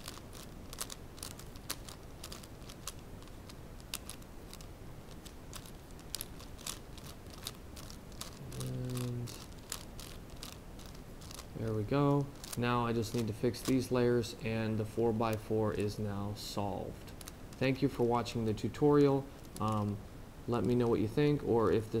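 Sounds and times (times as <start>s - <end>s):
plastic puzzle cube clicking: 0.0s - 11.5s, 12.4s - 13.8s
low voice humming: 8.4s - 9.5s.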